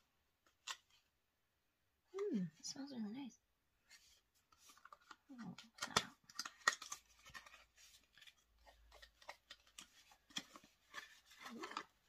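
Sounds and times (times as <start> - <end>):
packaging rustling and scraping: 3.9 - 12.0.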